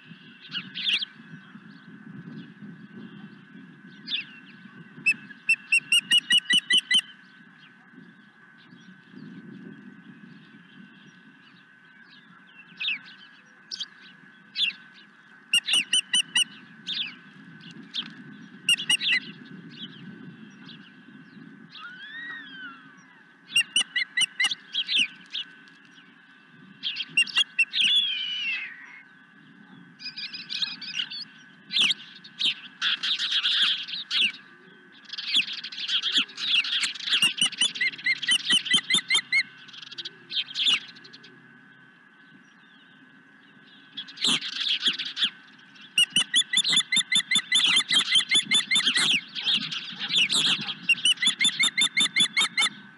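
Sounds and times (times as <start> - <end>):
ospreys chirping: 5.0 - 7.2, 15.5 - 17.2, 17.9 - 19.4, 21.8 - 25.6, 26.8 - 29.0, 35.1 - 41.2, 44.0 - 52.8.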